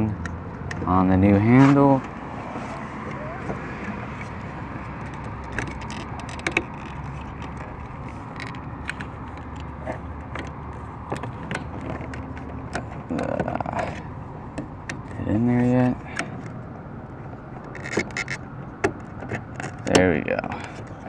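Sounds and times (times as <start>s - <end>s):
scraping rustle: 1.4s - 14.2s.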